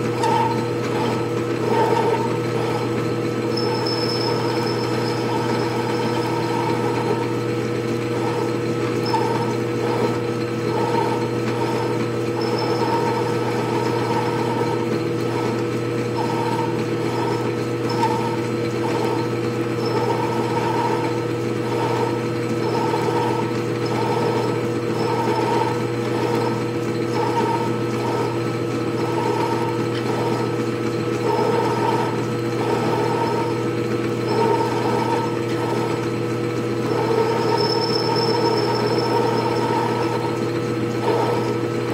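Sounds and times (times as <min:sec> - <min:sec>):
metal lathe running: 0:00.0 - 0:41.9
tool bit cutting metal: 0:00.1 - 0:02.9, 0:03.5 - 0:07.3, 0:08.1 - 0:28.4, 0:36.8 - 0:41.6.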